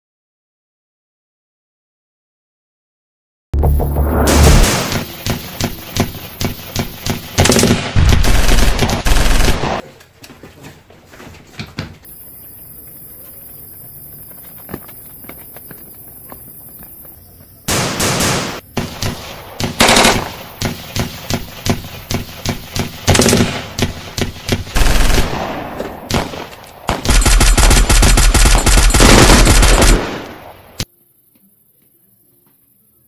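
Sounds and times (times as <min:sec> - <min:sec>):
gunshots and automatic fire: 0:03.6 - 0:09.8, 0:17.7 - 0:30.8.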